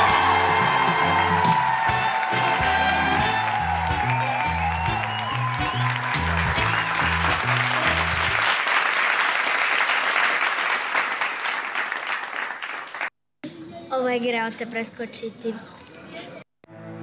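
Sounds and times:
theme music with pulsing bass: 0.0 - 8.4
applause and cheering: 0.0 - 13.1.

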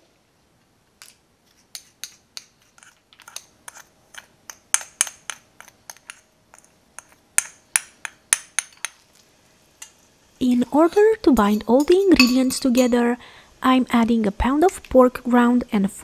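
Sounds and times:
metal spoon tapping ceramic dishes: 11.4 - 13.0.

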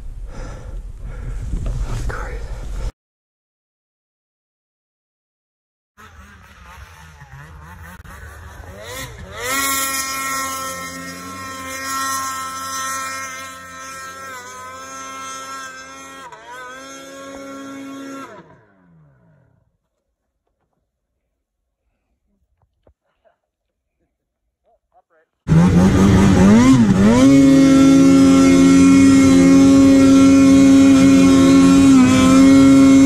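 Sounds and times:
snowmobile engine revving: 6.0 - 19.6, 25.5 - 33.0.

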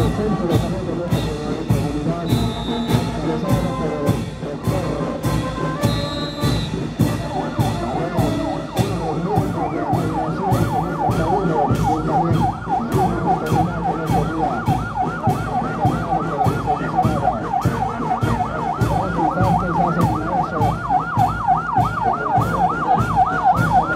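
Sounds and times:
ambulance siren yelping: 0.0 - 23.9
marching band drum and cymbals: 0.0 - 23.9.

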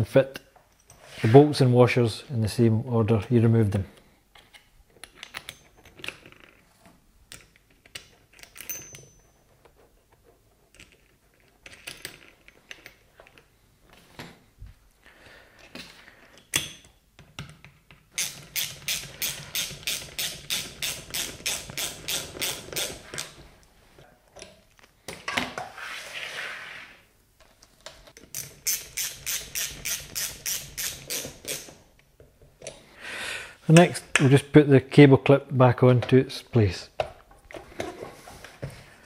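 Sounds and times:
socket ratchet clicking: 18.2 - 23.3, 28.2 - 31.8.

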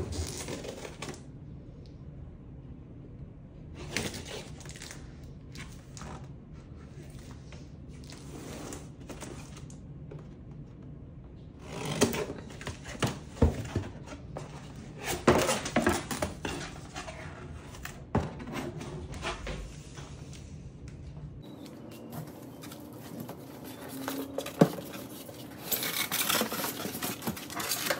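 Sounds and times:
cardboard rustling and scraping: 11.6 - 19.9, 21.9 - 27.9.

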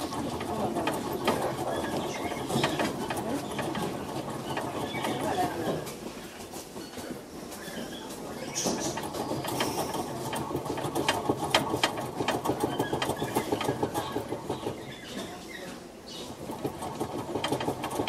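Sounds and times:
wire-mesh wheel spinning and rattling: 0.0 - 6.6, 8.2 - 15.4, 16.3 - 18.0.

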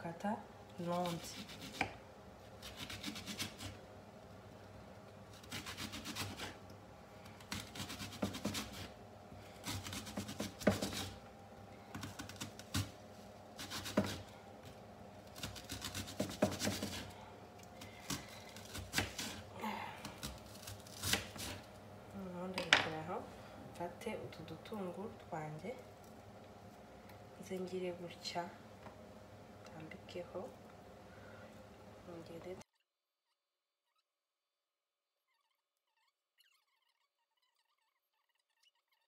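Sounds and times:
knife slicing onion: 0.8 - 3.8, 5.3 - 6.6, 7.4 - 11.2, 13.6 - 14.3, 15.2 - 17.2, 17.8 - 21.6.

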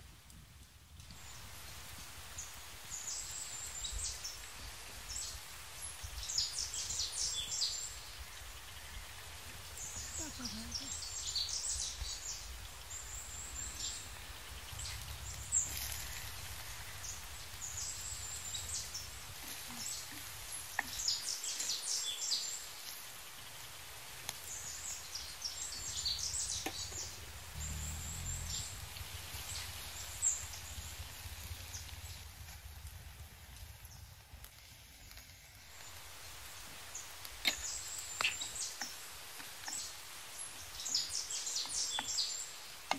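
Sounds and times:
low steady rumble: 7.7 - 21.1, 25.5 - 38.7
hot oil crackling and spluttering: 22.6 - 41.0.

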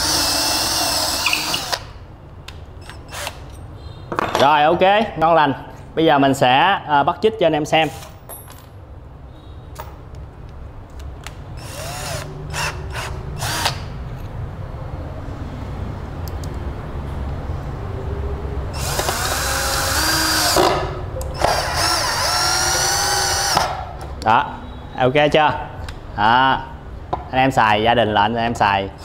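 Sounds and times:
drill grinding into wood: 0.0 - 1.9, 11.6 - 13.8, 18.8 - 20.7, 21.4 - 23.7
cordless drill running: 0.0 - 2.0, 11.6 - 13.8, 18.8 - 20.6, 21.4 - 23.7.

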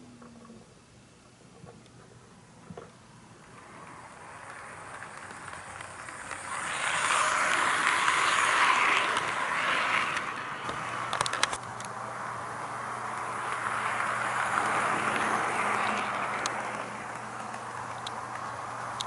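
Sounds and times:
model train motor whirring: 3.2 - 19.0
sharp clicks: 3.8 - 9.4, 10.1 - 12.0, 13.0 - 19.0.

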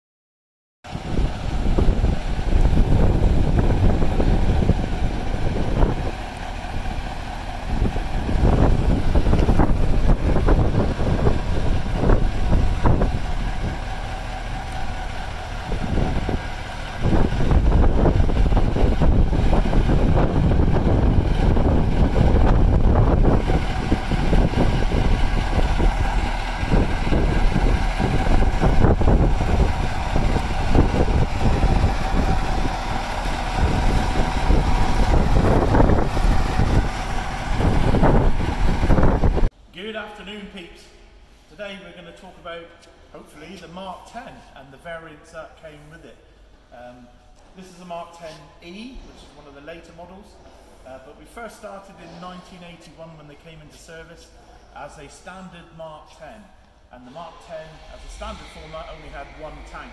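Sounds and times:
diesel truck driving past: 0.9 - 39.5, 56.7 - 59.9
wind buffeting microphone: 0.9 - 39.5.

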